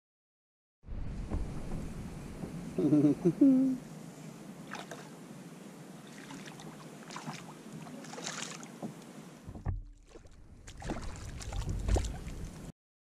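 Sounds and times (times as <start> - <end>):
wind buffeting microphone: 0.9 - 3.4, 8.8 - 12.7
water splashing and lapping: 1.0 - 12.7
fish thrashing at surface: 9.7 - 12.4.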